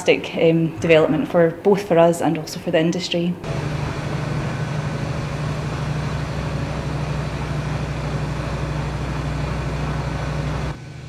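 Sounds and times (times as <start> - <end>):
truck engine humming: 3.4 - 11.0.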